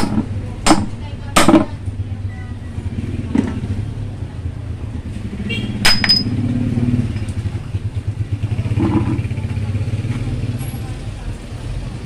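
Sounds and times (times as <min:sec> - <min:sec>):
low engine rumble: 0:00.0 - 0:12.0
sharp metallic clank with ring: 0:05.9 - 0:06.4.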